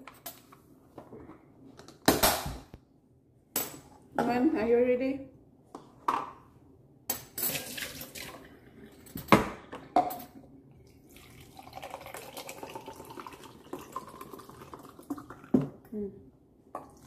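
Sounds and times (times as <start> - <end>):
lemonade pouring into cup: 7.5 - 8.9, 10.8 - 15.7.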